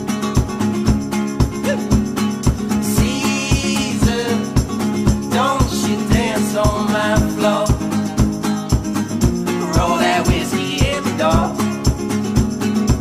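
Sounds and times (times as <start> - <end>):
steady drum beat: 0.0 - 13.0
person singing: 2.8 - 8.6, 9.5 - 11.8.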